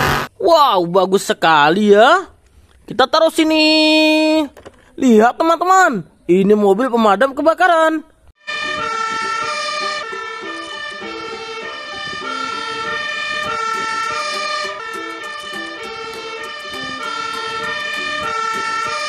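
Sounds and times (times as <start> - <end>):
fire engine two-tone siren: 8.4 - 19.0.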